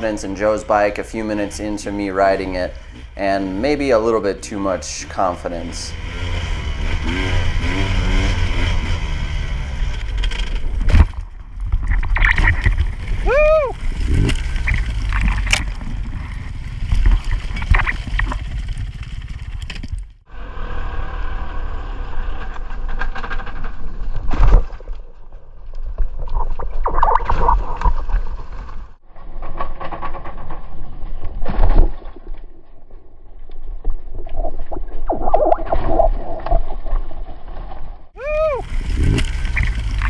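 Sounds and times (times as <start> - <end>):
dirt bike engine: 0.0 - 24.6, 38.2 - 40.0
scraping through dirt and branches: 10.0 - 20.1.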